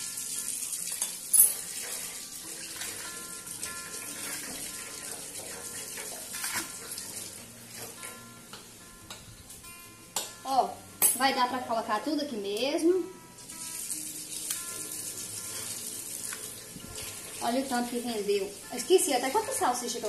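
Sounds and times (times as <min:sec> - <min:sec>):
tap water running into sink: 0:00.0 - 0:08.0, 0:13.5 - 0:18.2
dish clink: 0:00.9 - 0:02.0.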